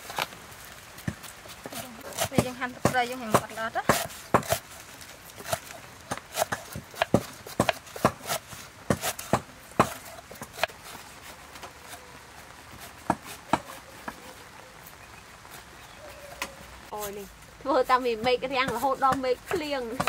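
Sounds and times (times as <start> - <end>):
knife chopping on wooden block: 1.7 - 4.6, 5.4 - 10.8.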